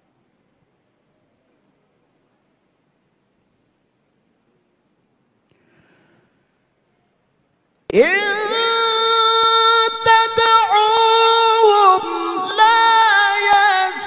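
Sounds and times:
man reciting melodically: 7.9s - 14.0s.

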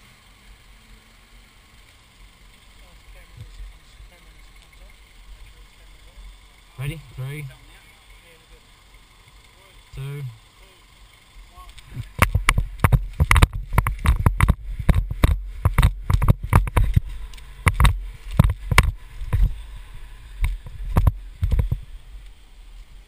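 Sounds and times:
running footsteps on grass and rocks: 11.6s - 22.0s
wind rumble on microphone: 11.9s - 23.0s.

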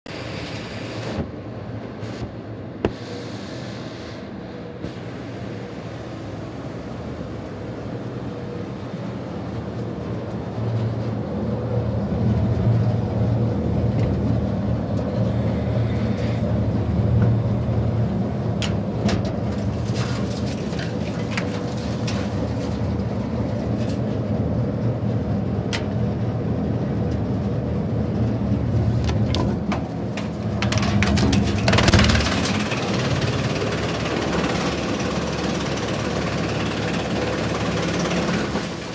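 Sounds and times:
tractor engine drone: 4.3s - 38.9s
wood chipper rush: 19.4s - 24.0s, 30.2s - 38.9s.

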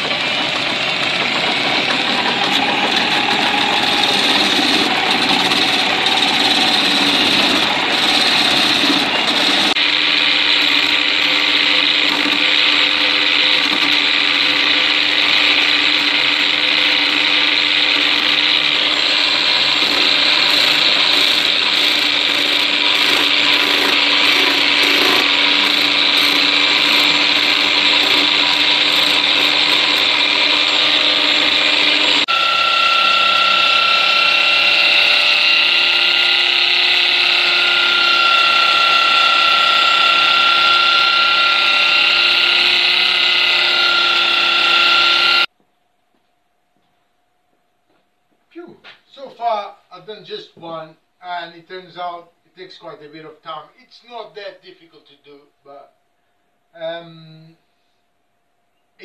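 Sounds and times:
electric drill running: 0.0s - 45.5s
steel scraper cutting spinning wood: 0.0s - 45.5s.

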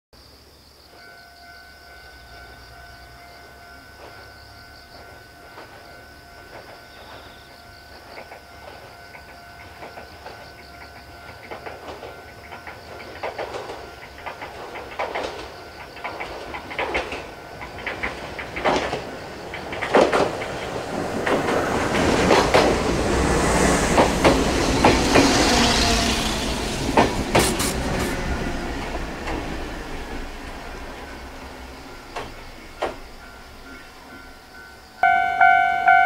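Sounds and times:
faint steady high tone: 0.8s - 13.0s, 31.8s - 36.0s
train wheels clicking over rail joints: 2.5s - 34.6s.

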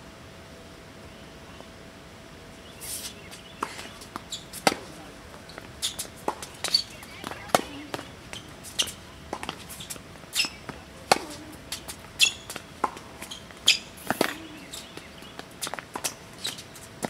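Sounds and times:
sneakers squeaking: 2.7s - 17.0s
tennis ball bouncing: 3.3s - 16.8s
tennis racket strikes: 4.6s - 5.0s, 8.7s - 15.0s.

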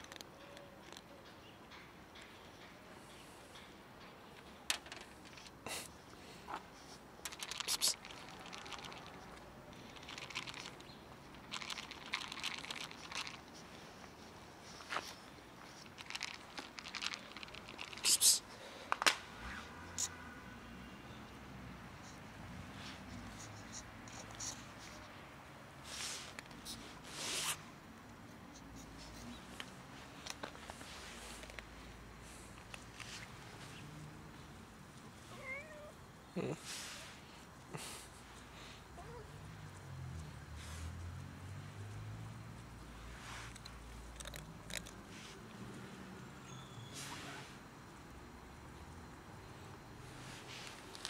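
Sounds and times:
hissing rustle: 6.6s - 18.6s, 22.1s - 34.0s, 36.5s - 39.3s, 40.1s - 45.8s, 46.8s - 47.7s, 50.0s - 51.0s
kibble rattling in plastic container: 7.3s - 9.2s, 9.9s - 13.4s, 15.9s - 18.1s.

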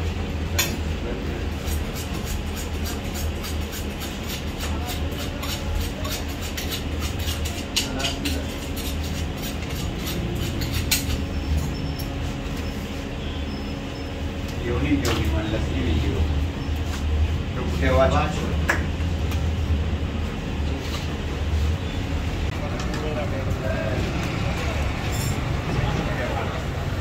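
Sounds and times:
steady low hum: 0.0s - 27.0s.

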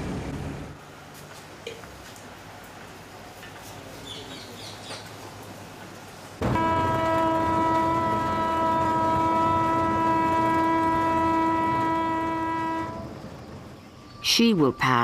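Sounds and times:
train horn blast: 6.4s - 13.2s.

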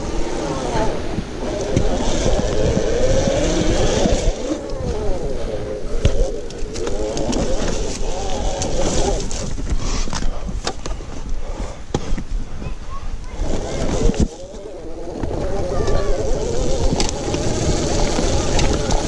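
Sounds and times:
electric motorbike motor whining: 0.0s - 9.6s, 13.3s - 19.0s.

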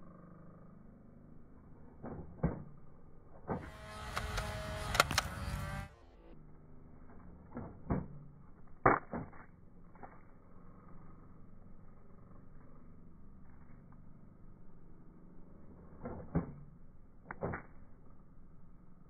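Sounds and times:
whirring flywheel motor: 1.6s - 8.2s.

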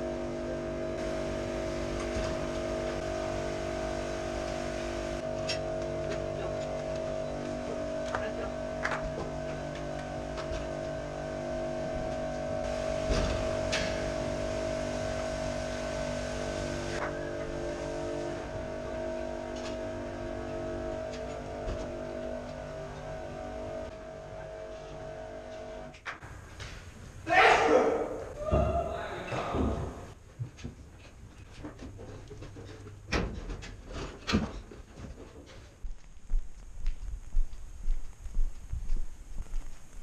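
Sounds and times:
steady machine hum: 0.0s - 28.9s.

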